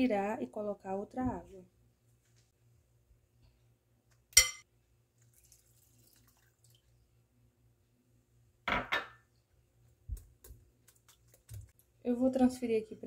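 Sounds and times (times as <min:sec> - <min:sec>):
clink on glass bowl: 0:04.4 - 0:04.6
water splashing in bowl: 0:05.2 - 0:07.0, 0:10.2 - 0:11.8.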